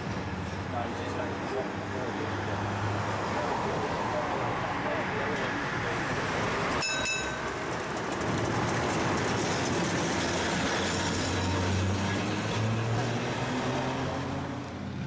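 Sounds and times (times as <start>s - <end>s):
tram wheels rumbling on rails: 5.4s - 13.3s
brief high ringing tone: 6.8s - 7.4s.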